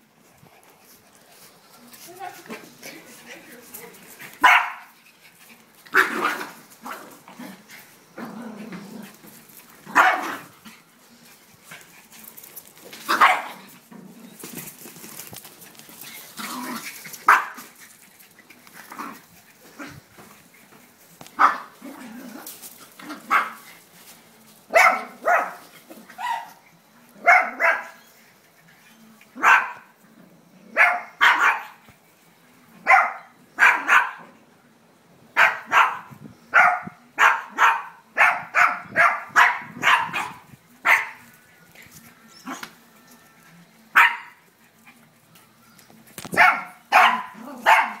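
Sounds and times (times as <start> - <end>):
small dogs barking: 4.3 - 5.0, 5.9 - 7.2, 9.8 - 10.8, 13.1 - 13.7, 16.4 - 17.8, 21.4 - 22.2, 23.0 - 23.7, 24.7 - 26.6, 27.2 - 28.0, 29.4 - 30.0, 30.7 - 31.8, 32.8 - 34.4, 35.3 - 41.4, 43.9 - 45.0, 46.2 - 48.0.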